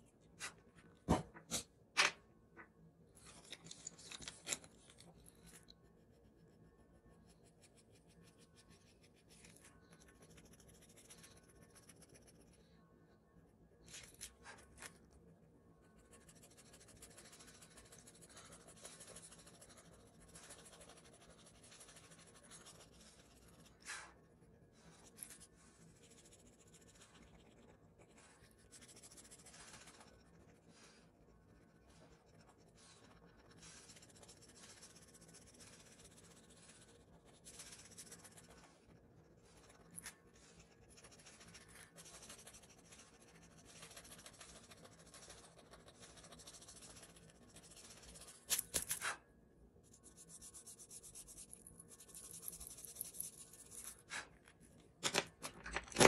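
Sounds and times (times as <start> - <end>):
drawing tool scratching paper: 16.1 - 24.2, 24.8 - 49.2.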